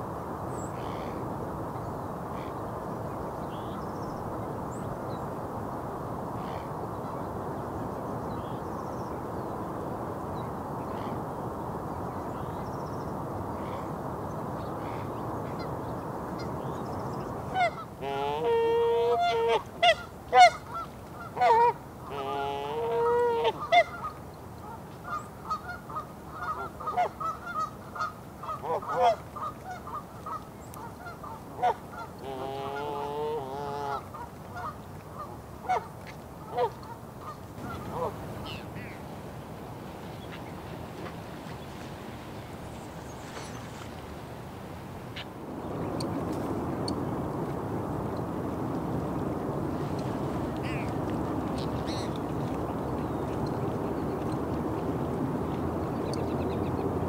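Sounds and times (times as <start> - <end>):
distant highway traffic rumble: 8.4 - 57.0
geese honking: 17.6 - 24.2, 25.1 - 34.8, 36.5 - 39.0.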